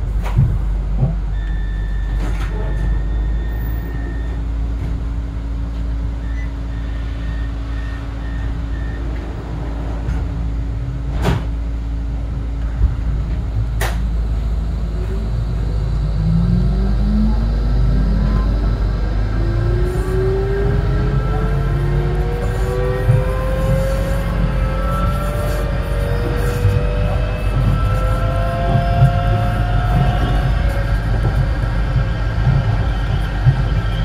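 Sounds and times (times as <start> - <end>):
tram hum and low rumble: 0.0 - 34.0
tram motor rising whine: 0.0 - 34.0
short beeps: 1.4 - 4.4, 6.2 - 9.1.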